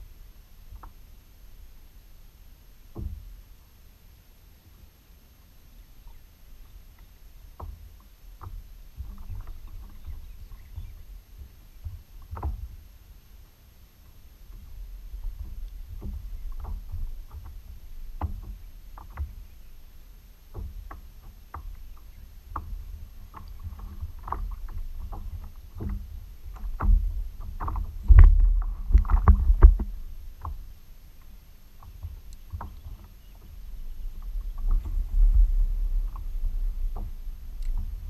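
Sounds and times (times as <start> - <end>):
water lapping against kayak hull: 4.4 - 38.0
small knocks and taps: 14.5 - 19.4, 20.5 - 30.6, 31.2 - 33.6
low rumble: 26.2 - 30.9, 33.3 - 38.0.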